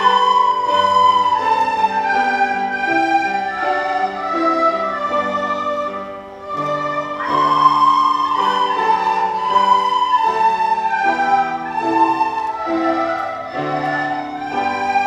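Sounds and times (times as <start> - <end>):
children playing recorders: 0.0 - 15.0.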